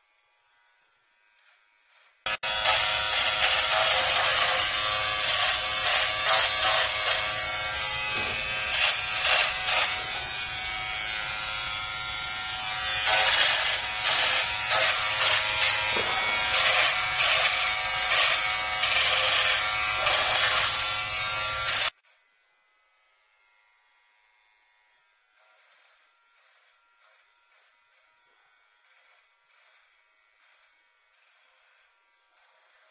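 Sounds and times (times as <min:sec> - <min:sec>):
electric trimmer buzzing: 0:00.0 - 0:32.9.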